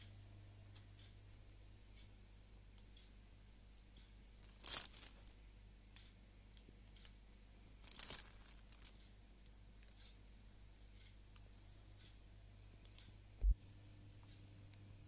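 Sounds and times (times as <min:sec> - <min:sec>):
low steady hum: 0:00.0 - 0:15.0
aluminium foil crinkling: 0:04.4 - 0:05.4, 0:07.8 - 0:09.0.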